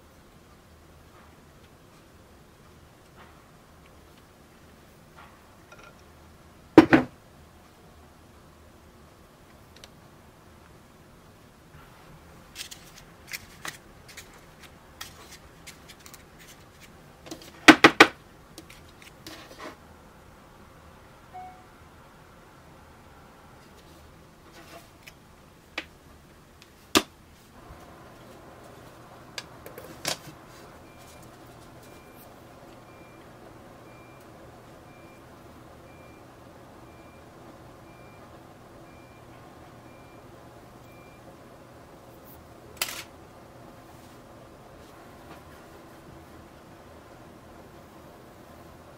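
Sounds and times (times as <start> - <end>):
steady low hum: 18.2 - 48.9
high electronic beeps: 21.4 - 21.7.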